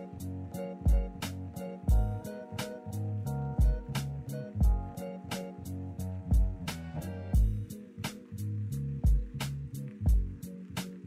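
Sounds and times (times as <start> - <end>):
bass line: 0.0 - 11.0
kick drum: 0.9 - 1.2, 1.9 - 2.2, 3.6 - 4.0, 4.6 - 4.9, 6.3 - 6.7, 7.4 - 7.7, 9.0 - 9.4, 10.1 - 10.4.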